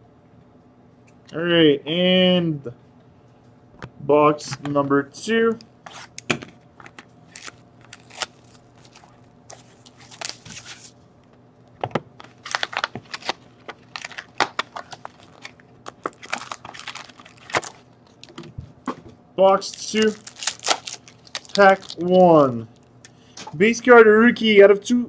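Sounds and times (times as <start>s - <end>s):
foil packs crinkling: 6.8s - 11.0s, 12.2s - 18.4s, 19.4s - 22.9s.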